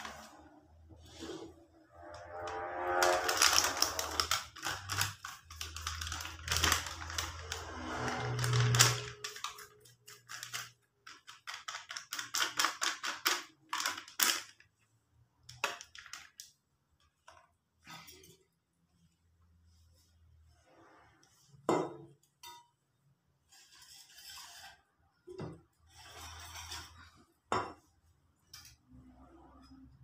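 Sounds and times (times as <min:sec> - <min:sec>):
packet crinkling: 0:03.0 - 0:14.7.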